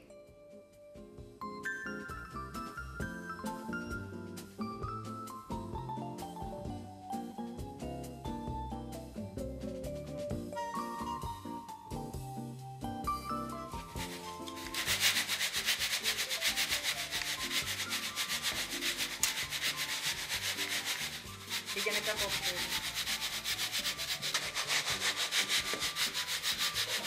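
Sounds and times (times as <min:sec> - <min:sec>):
pasta pellets rasping in a sieve: 0:13.8 - 0:27.0.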